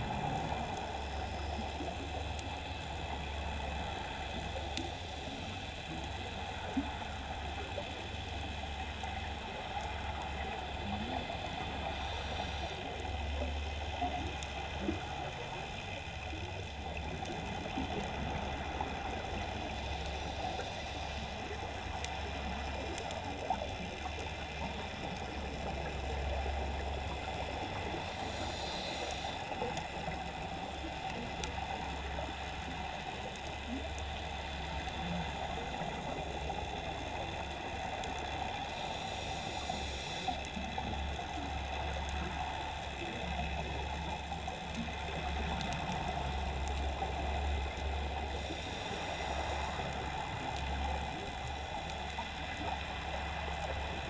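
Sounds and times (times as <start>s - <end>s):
low underwater rumble: 0.0s - 7.1s
regulator bubbles hissing: 9.1s - 54.0s.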